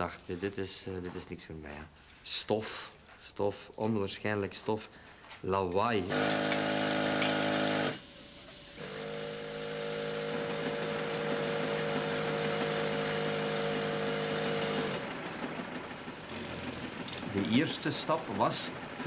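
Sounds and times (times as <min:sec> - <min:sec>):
mining machinery motor drone: 0:06.0 - 0:08.0, 0:08.8 - 0:19.0.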